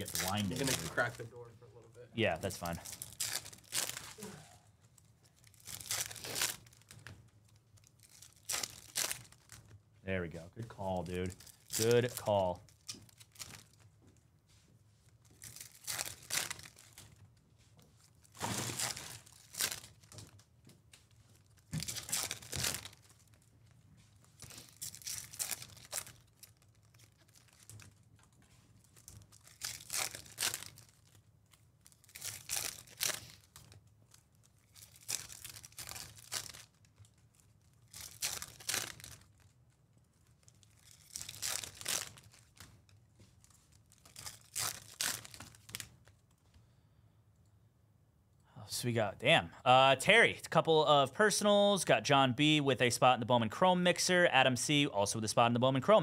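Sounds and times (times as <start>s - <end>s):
cards rustling as dealt: 0.0s - 1.2s
foil wrapper crinkling: 0.0s - 1.3s, 2.5s - 9.7s, 10.9s - 14.0s, 15.0s - 46.4s.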